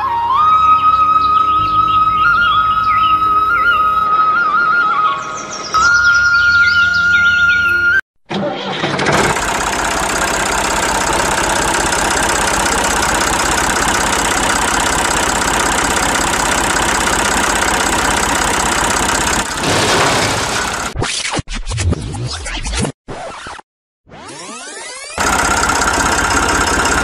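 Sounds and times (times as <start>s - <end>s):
tractor engine chugging: 8.8s - 21.0s, 25.2s - 27.0s.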